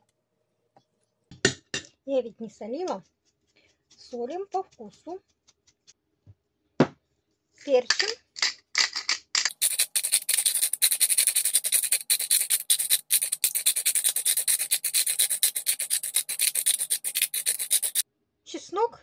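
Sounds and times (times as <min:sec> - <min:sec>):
pepper mill grinding: 0:07.6 - 0:18.0.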